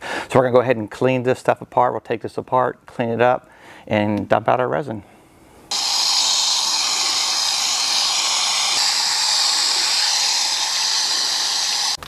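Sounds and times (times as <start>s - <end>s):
hose nozzle spraying water: 5.7s - 12.0s.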